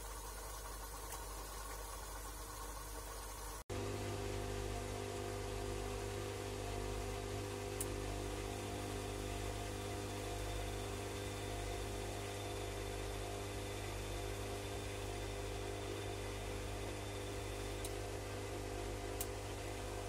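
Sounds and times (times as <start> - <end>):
washing machine spinning: 0.0 - 20.0
faint high whine: 3.8 - 18.0.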